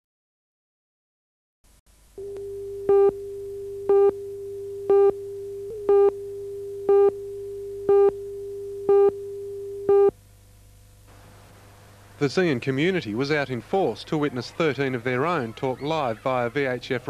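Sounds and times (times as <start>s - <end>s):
steady mid-pitched tone: 2.2s - 10.2s
countdown beeps: 3.9s - 4.2s, 4.9s - 6.2s, 6.9s - 7.2s, 7.9s - 8.2s.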